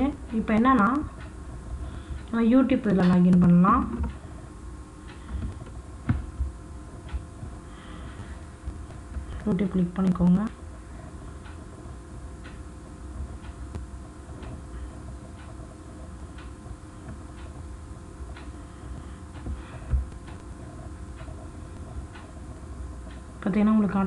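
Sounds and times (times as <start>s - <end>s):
low steady room hum: 0.0s - 24.0s
quiet even ticking: 5.0s - 24.0s.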